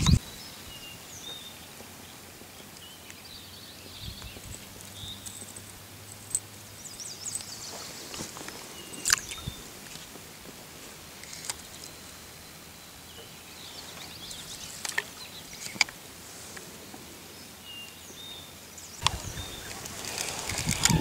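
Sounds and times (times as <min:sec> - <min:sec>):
sharp clicks: 0:00.0 - 0:00.2.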